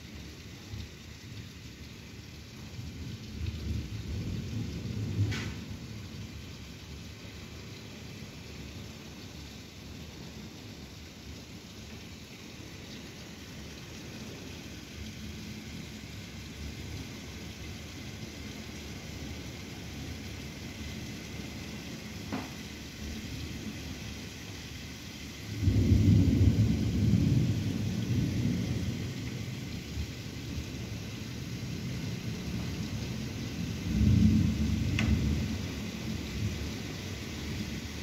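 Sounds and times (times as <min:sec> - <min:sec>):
steady rain: 0:00.0 - 0:38.0
thunder rumbling: 0:02.8 - 0:06.2, 0:25.5 - 0:38.0.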